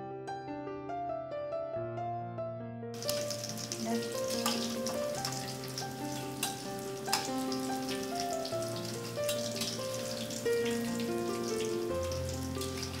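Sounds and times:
slow background music: 0:02.0 - 0:13.0
food sizzling in hot oil: 0:03.0 - 0:13.0.

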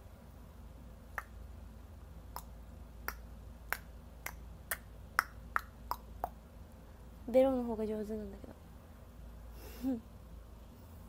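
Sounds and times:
finger snap clicks: 0:01.1 - 0:01.4, 0:02.3 - 0:06.4.

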